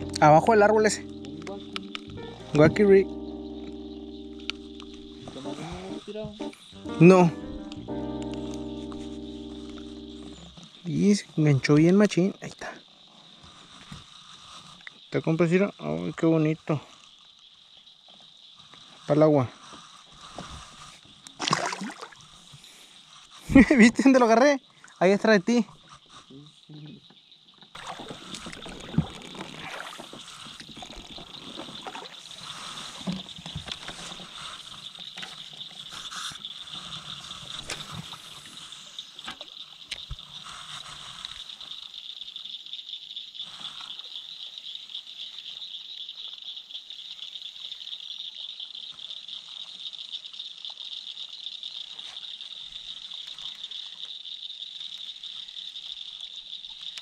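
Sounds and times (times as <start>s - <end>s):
high-pitched hiss: 0.0s - 17.8s, 29.7s - 45.4s.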